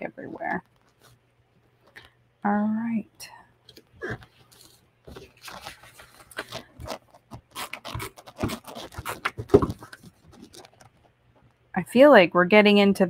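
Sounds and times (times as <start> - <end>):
paper rustling and sliding: 4.4 - 11.0.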